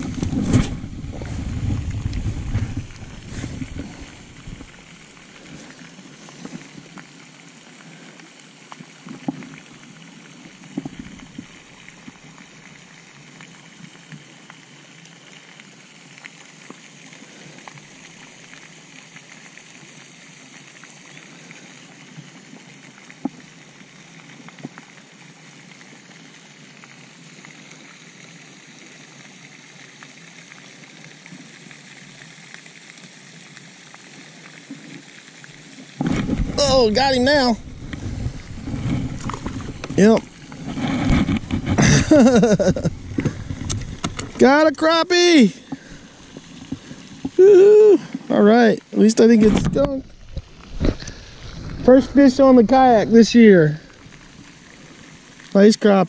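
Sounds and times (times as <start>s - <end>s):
wind buffet on microphone: 0.0s - 4.8s, 36.0s - 44.4s
water hiss: 0.0s - 56.0s.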